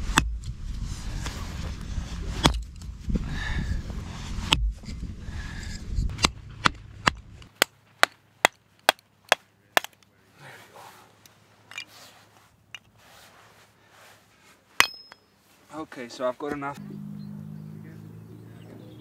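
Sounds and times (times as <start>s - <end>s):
low rumble: 0.0s - 7.5s.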